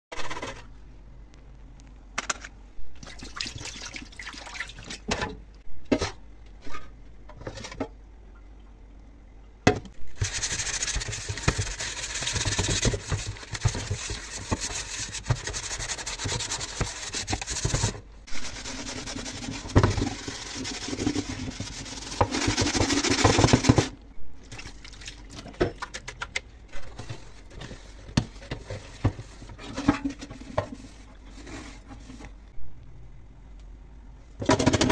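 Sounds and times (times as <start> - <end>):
cloth rubbing on pan: 10.2 - 23.9, 26.8 - 32.3
water and sponge scrubbing: 10.2 - 23.9, 26.7 - 32.4.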